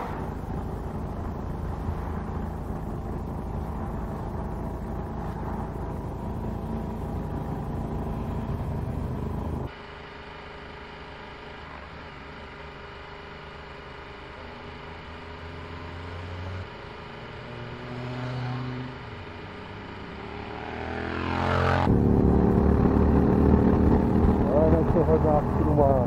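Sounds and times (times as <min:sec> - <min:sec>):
motorcycles passing: 0:00.0 - 0:09.7, 0:15.8 - 0:26.0
motorcycle engine running: 0:00.0 - 0:26.0.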